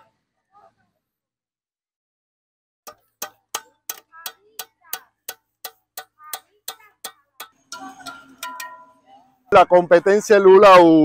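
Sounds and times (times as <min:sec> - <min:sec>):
steady sharp ticking: 0:02.9 - 0:10.3.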